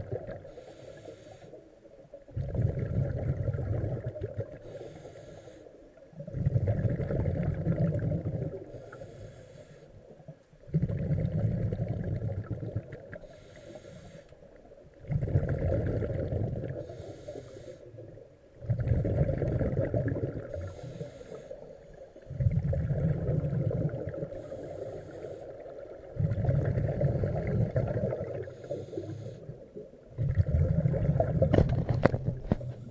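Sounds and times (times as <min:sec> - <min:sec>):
diver inhaling through regulator: 0:00.3 - 0:01.7, 0:04.4 - 0:05.9, 0:08.5 - 0:10.0, 0:13.2 - 0:14.5, 0:15.9 - 0:18.0, 0:20.3 - 0:27.5, 0:28.2 - 0:29.8
diver exhaling bubbles: 0:02.3 - 0:04.8, 0:06.2 - 0:08.7, 0:10.7 - 0:13.3, 0:15.0 - 0:17.1, 0:18.6 - 0:21.2, 0:22.2 - 0:29.5, 0:30.1 - 0:32.9.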